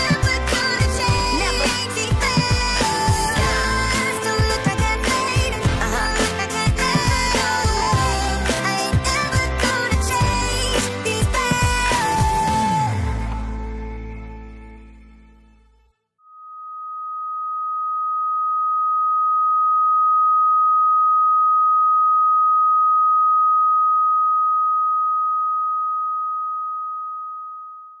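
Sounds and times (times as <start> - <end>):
music: 0.0 - 16.1
steady electronic tone: 16.2 - 28.0.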